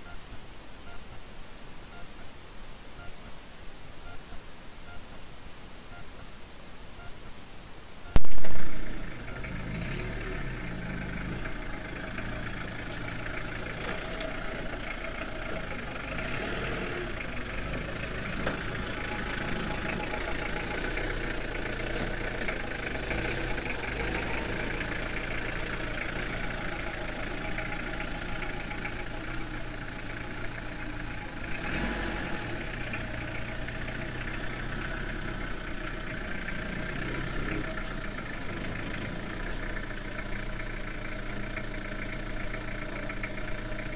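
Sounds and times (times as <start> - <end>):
van engine idling: 8.1 - 43.9
loud pop: 8.2 - 8.8.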